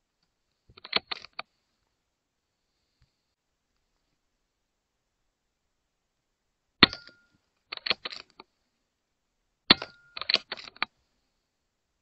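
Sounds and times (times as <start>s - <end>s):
metallic clicks of rifle action: 0.7s - 1.5s, 6.8s - 8.5s, 9.7s - 11.0s.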